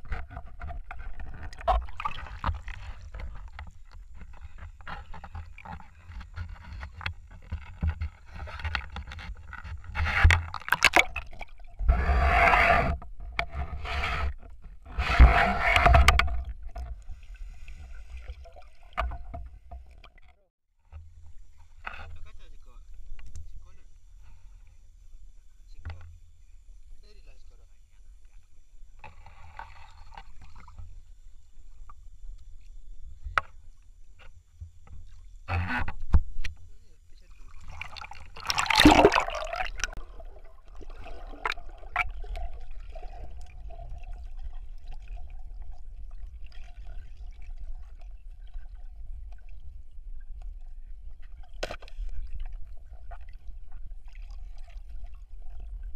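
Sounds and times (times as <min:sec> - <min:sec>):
underwater clicks and knocks: 0:00.0 - 0:12.0, 0:14.4 - 0:17.1, 0:18.9 - 0:21.2, 0:25.8 - 0:26.2, 0:37.6 - 0:40.1, 0:40.7 - 0:44.0
muffled underwater rumble: 0:00.0 - 0:55.9
rushing gurgling water bursts: 0:37.3 - 0:49.2
loud splashing rush: 0:37.9 - 0:40.0.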